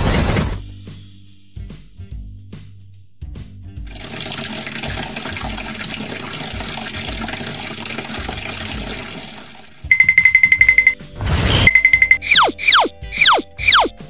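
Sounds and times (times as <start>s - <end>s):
water pouring into box: 3.9s - 9.9s.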